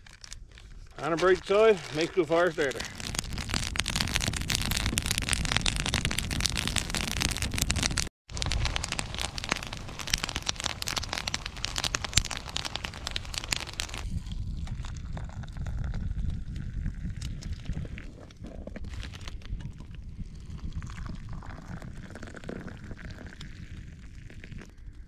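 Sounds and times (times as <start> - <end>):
wood fire crackling and popping: 0.0 - 25.0.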